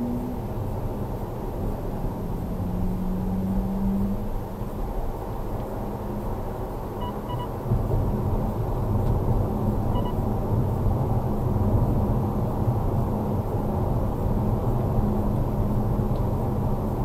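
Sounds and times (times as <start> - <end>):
car engine and tyre rumble: 0.0 - 17.0
short beeps: 7.0 - 7.5, 9.9 - 10.2.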